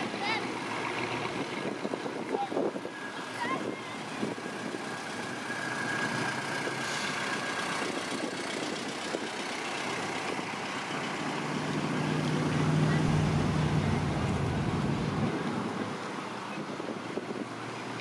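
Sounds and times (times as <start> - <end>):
car engines passing slowly: 0.0 - 18.0
pickup truck engine hum: 0.0 - 18.0
road noise: 0.0 - 18.0.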